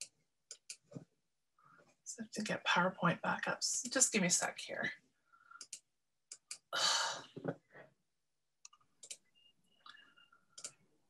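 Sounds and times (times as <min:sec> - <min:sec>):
computer mouse clicks: 0:00.0 - 0:01.0, 0:05.6 - 0:06.7, 0:08.6 - 0:09.3, 0:09.9 - 0:10.8.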